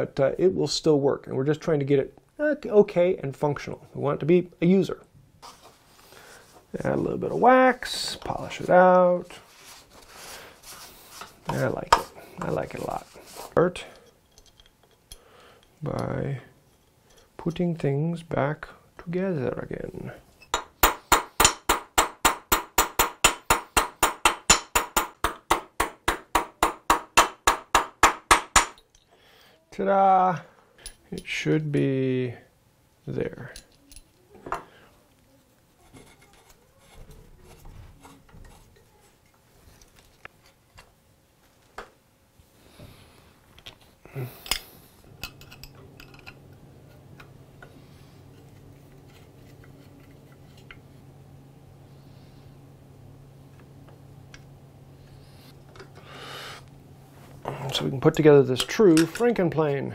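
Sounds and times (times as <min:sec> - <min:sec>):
low steady hum: 0:00.0 - 0:59.9
hammer tapping on metal: 0:20.5 - 0:28.8.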